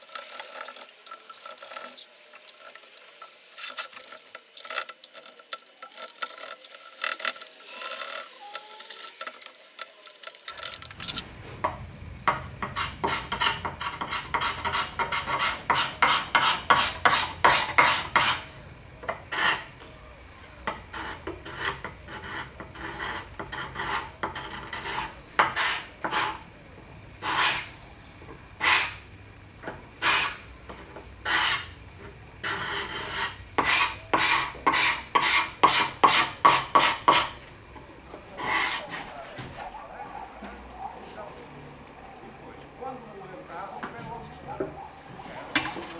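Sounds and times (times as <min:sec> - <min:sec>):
steel scraper scraping wood: 0:12.3 - 0:18.5, 0:19.2 - 0:19.8, 0:20.7 - 0:26.4, 0:27.2 - 0:27.8, 0:28.6 - 0:29.0, 0:30.0 - 0:31.8, 0:32.4 - 0:37.4, 0:38.3 - 0:39.2.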